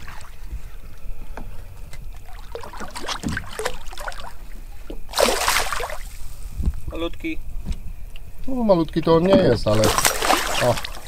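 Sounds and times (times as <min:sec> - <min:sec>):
water lapping against boat: 0:00.0 - 0:06.8, 0:09.2 - 0:11.0
loud water splash: 0:05.1 - 0:06.2, 0:09.7 - 0:11.0.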